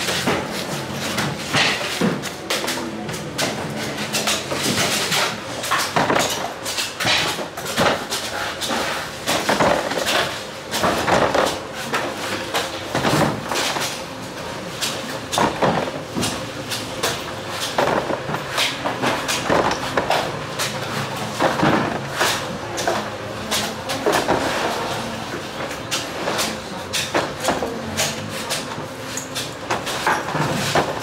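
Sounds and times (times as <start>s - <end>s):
market background noise: 0.0s - 31.0s.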